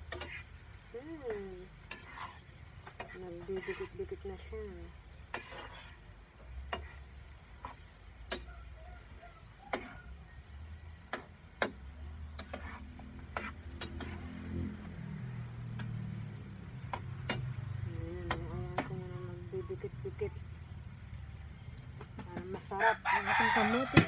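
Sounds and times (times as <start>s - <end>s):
low steady hum: 0.0s - 22.9s
sharp clicks from frying pan: 8.2s - 8.5s, 16.9s - 17.6s.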